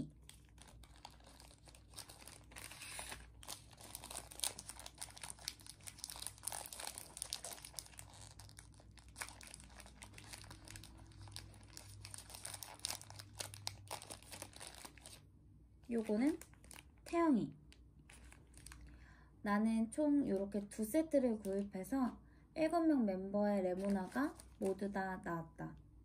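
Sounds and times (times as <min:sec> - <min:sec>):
wrapper crinkling and tearing: 0:00.0 - 0:15.3, 0:15.9 - 0:17.2, 0:18.0 - 0:19.0, 0:23.7 - 0:25.0.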